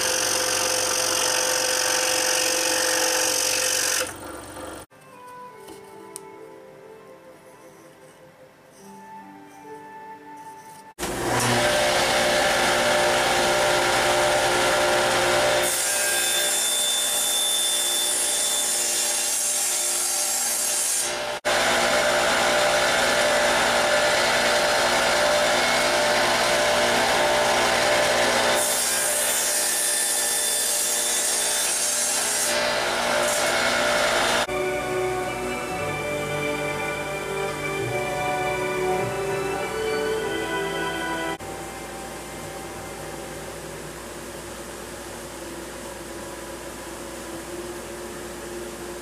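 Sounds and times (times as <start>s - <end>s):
table saw running: 0.0s - 4.8s, 11.0s - 20.5s, 21.1s - 42.6s
saw cutting wood: 0.0s - 4.9s, 11.0s - 34.8s.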